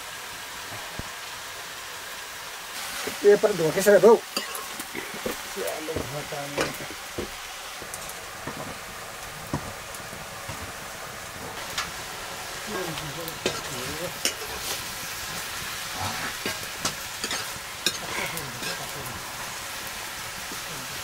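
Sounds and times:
greens sizzling in a wok: 0.0s - 21.0s
metal spoon scraping wok: 4.3s - 5.4s, 12.7s - 19.6s.

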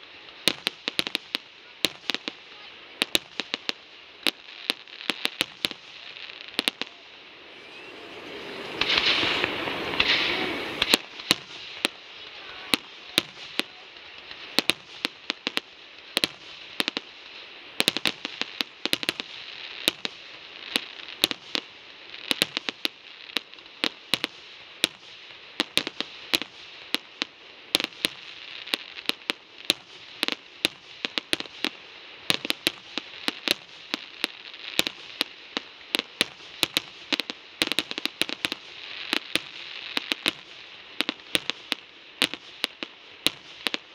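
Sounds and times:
crackling hiss: 0.0s - 43.9s
fireworks shells bursting: 4.3s - 15.6s.

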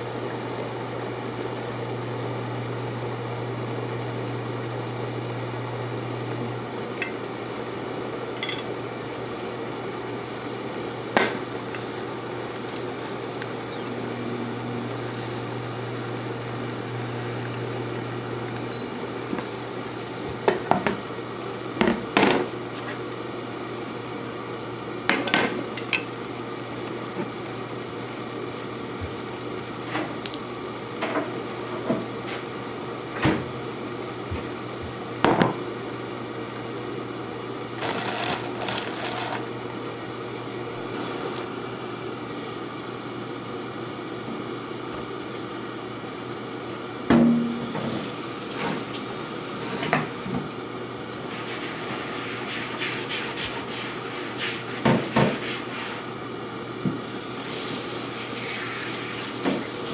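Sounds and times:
steady background hum: 0.0s - 59.9s
brief hissing: 57.2s - 59.9s.

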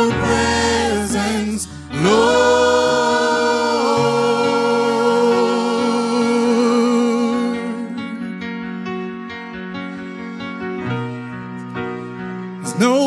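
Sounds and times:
gospel group singing: 0.0s - 8.4s.

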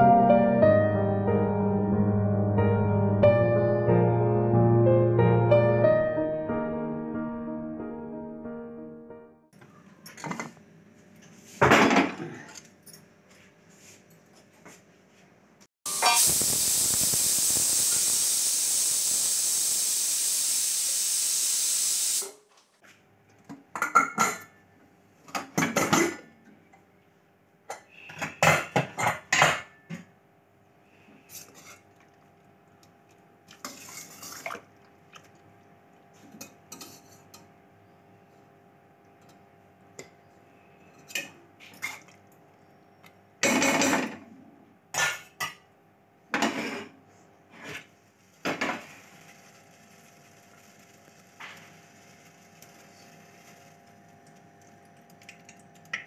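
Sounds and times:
pressure cooker steam hiss: 15.9s - 22.4s
spoon stirring in a pot: 33.5s - 34.4s.

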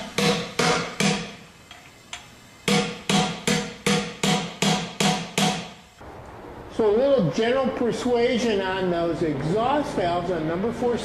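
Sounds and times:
hammer striking metal drift: 2.7s - 5.8s.

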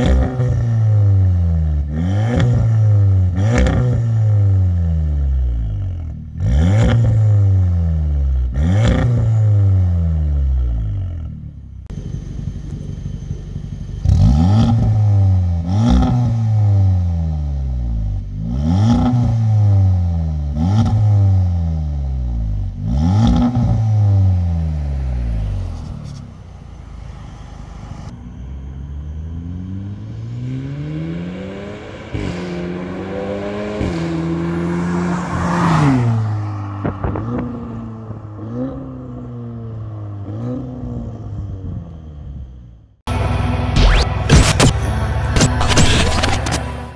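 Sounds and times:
car engine revving: 0.0s - 46.9s
car engine idling: 10.3s - 15.8s, 23.7s - 34.9s, 36.2s - 46.9s.

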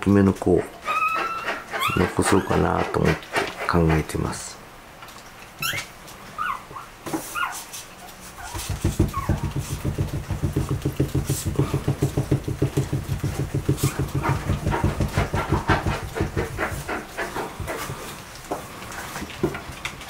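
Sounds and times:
puppies squeaking: 0.8s - 3.0s, 5.6s - 9.7s
small dog panting rapidly: 1.2s - 3.8s, 13.3s - 18.1s.

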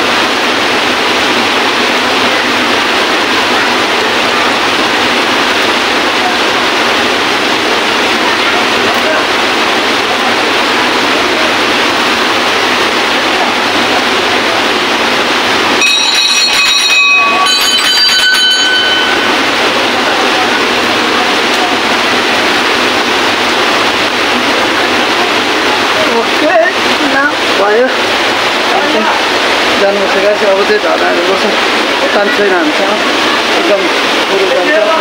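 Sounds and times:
flowing water: 0.0s - 35.0s
hand bell ringing: 15.8s - 19.5s.

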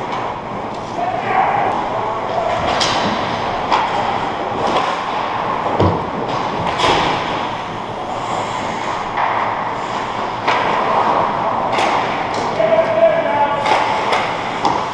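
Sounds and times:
hockey sticks and puck knocks: 2.4s - 7.5s, 8.8s - 9.6s, 10.4s - 14.9s
ice rink hiss: 7.9s - 11.6s.

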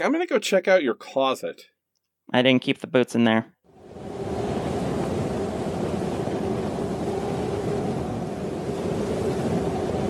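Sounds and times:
low rumbling noise: 3.7s - 10.0s
faint hum: 3.8s - 10.0s.

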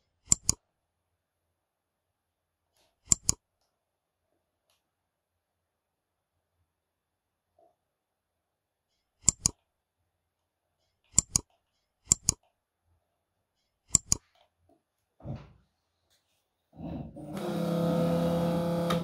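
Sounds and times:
computer mouse clicks: 0.2s - 0.6s, 2.8s - 3.4s, 9.2s - 9.6s, 11.1s - 12.6s, 13.9s - 14.5s.

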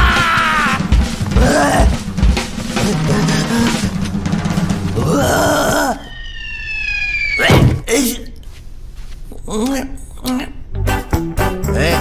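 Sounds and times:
bass drum beat: 0.0s - 5.7s.

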